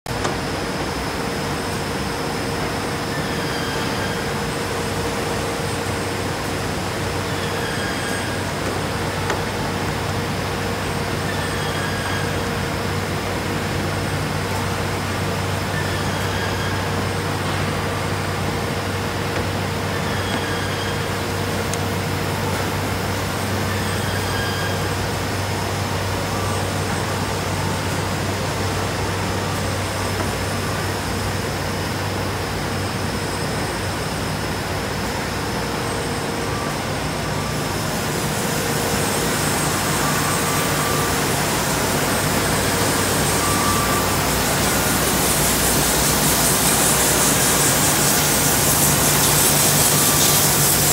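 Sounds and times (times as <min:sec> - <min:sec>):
industrial sanding machine drone: 0:36.2 - 0:50.9.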